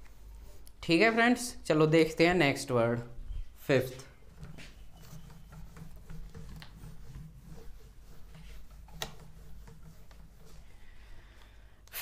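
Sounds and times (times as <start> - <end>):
duster rubbing whiteboard: 3.8 - 11.4.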